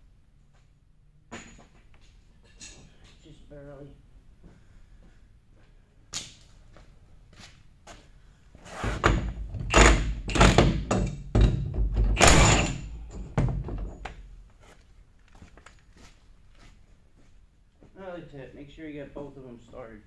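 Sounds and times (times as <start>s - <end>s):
impact wrench bursts: 9.7s - 11.5s, 12.2s - 13.1s.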